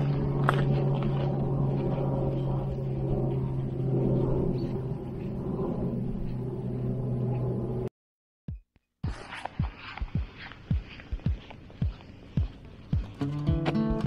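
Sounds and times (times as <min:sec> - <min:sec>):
low engine drone: 0:00.0 - 0:07.9.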